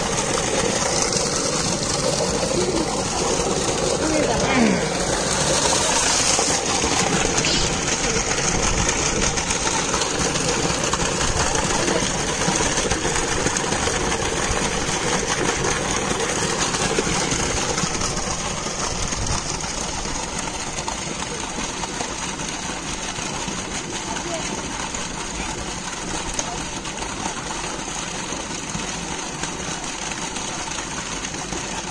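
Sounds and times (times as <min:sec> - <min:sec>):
pump motor humming: 0:00.0 - 0:31.9
water gushing into tank: 0:00.0 - 0:31.9.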